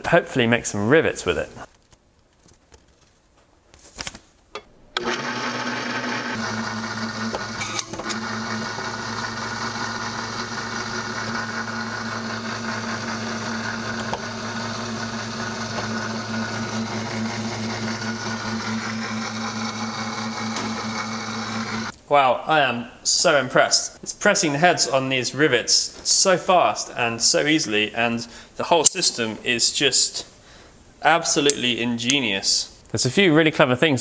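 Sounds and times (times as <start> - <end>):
electric pump motor humming: 5.0 - 21.9.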